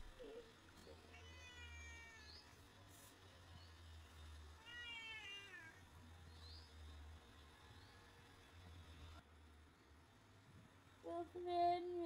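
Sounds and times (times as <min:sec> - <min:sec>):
cat meowing: 0:01.0 - 0:02.5, 0:04.6 - 0:05.8.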